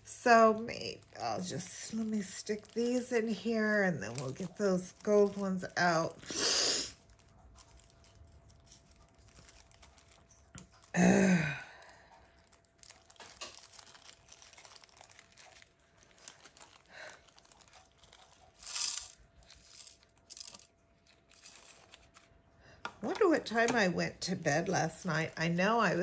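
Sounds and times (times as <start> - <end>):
plastic bags crinkling: 0.0 - 26.0.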